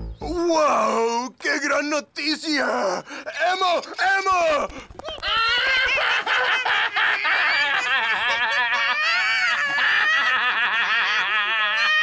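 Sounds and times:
cartoon voices laughing: 3.5s - 12.0s.

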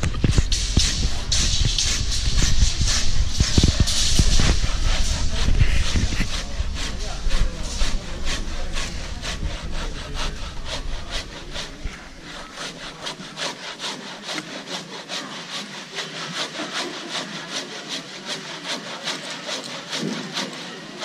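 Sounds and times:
low rumble: 0.0s - 12.6s
handsaw cutting wood: 0.0s - 21.0s.

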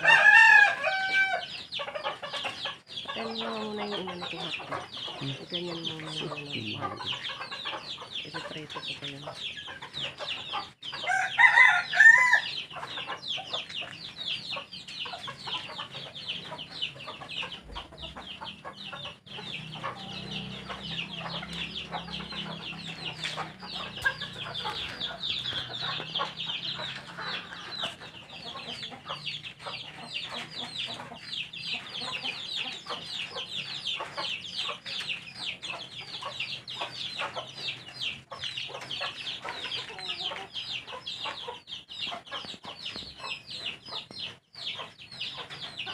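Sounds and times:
loud chicken call: 0.0s - 1.5s, 11.0s - 12.6s
chickens clucking and peeping: 0.0s - 45.9s.

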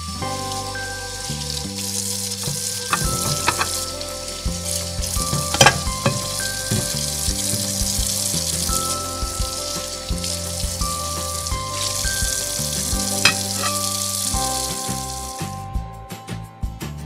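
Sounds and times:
hot oil sizzling in a wok: 0.0s - 15.6s
wooden spatula stirring: 2.8s - 3.8s, 11.8s - 14.2s.

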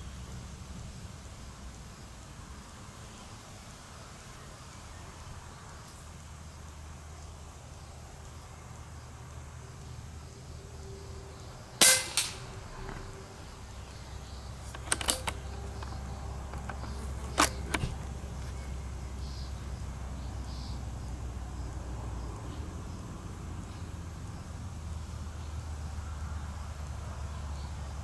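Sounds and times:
air rifle shots: 11.8s - 13.1s, 14.6s - 18.1s
quiet clicks: 13.9s - 18.7s.

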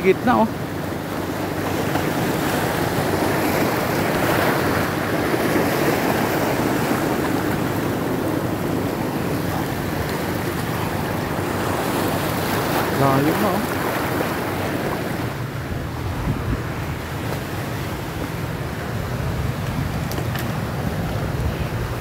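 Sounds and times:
sea waves rushing: 0.0s - 22.0s
wind buffeting microphone: 0.7s - 22.0s.

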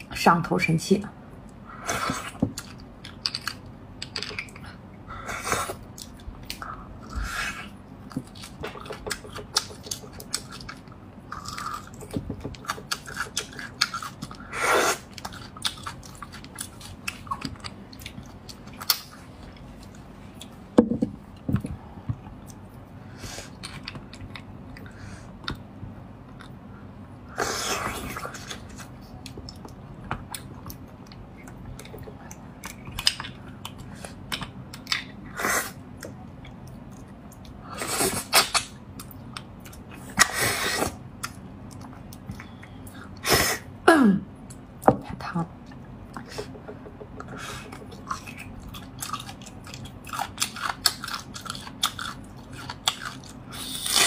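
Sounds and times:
close chewing and mouth sounds: 1.4s - 20.7s, 21.3s - 43.3s, 45.6s - 54.0s.

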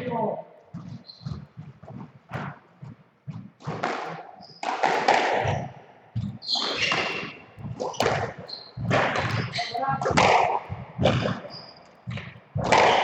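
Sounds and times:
thudding footsteps: 0.0s - 13.0s
shoe squeaks on wooden floor: 0.1s - 4.8s, 5.4s - 13.0s
rackets striking ball: 3.3s - 13.0s.

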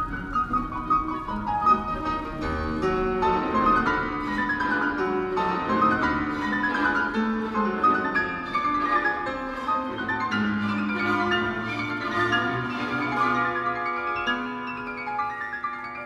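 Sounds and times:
classical piano and orchestra music: 0.0s - 16.0s.

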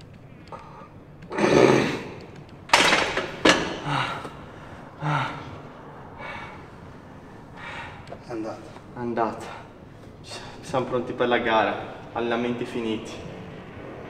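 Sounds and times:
man breathing hard: 3.7s - 8.2s
man gasping: 3.8s - 5.6s.

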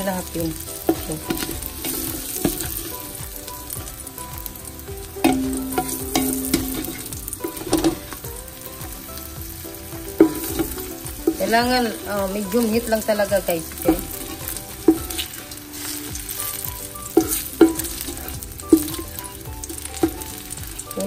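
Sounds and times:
low steady tone: 0.0s - 15.5s
oil sizzling in frying pan: 0.0s - 21.0s.

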